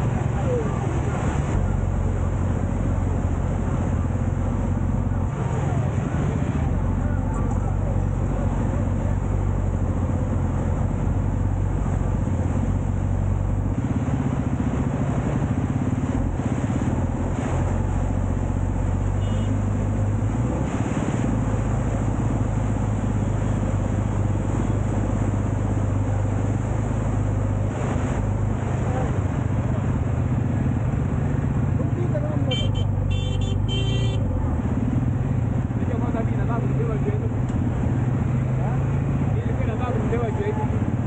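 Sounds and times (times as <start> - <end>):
road traffic: 0.0 - 41.0.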